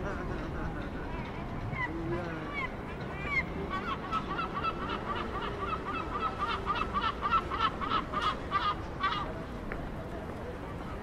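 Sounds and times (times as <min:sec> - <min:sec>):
gull laughing calls: 0:03.3 - 0:09.2.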